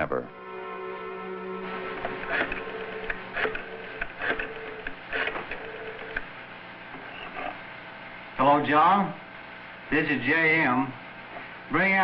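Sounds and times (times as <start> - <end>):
faint steady hum: 0.0 - 12.0
rotary dial ratcheting clicks: 2.1 - 6.3.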